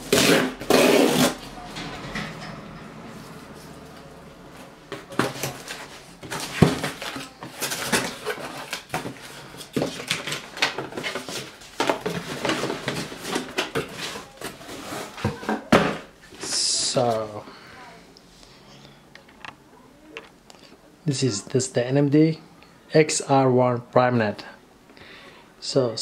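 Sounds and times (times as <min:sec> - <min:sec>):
cardboard box rustling and scraping: 0:05.0 - 0:16.1.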